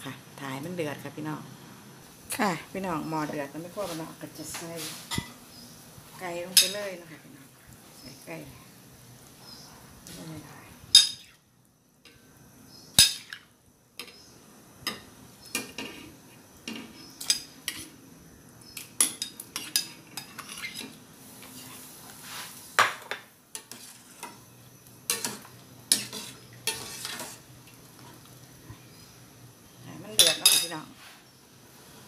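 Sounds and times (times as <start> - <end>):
broth boiling: 0.0 - 32.0
ladle scraping pot: 19.0 - 21.8, 23.6 - 24.4, 25.1 - 28.3.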